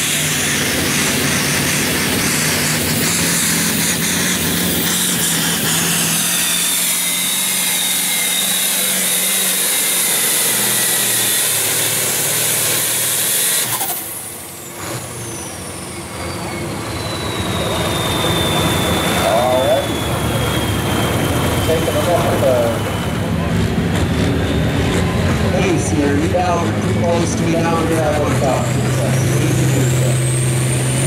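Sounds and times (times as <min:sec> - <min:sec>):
tractor engine running hard: 0:00.0 - 0:31.0
high whistle sliding down: 0:15.2 - 0:23.3.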